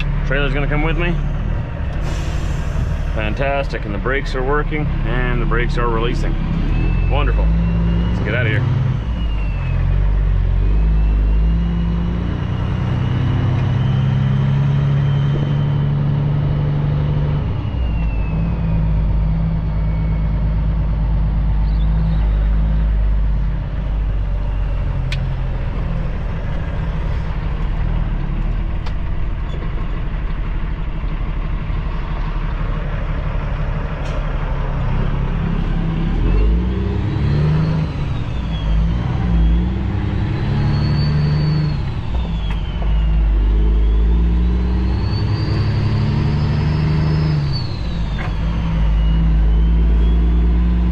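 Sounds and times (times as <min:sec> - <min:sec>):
diesel truck engine pulling under load: 0:00.0 - 0:50.9.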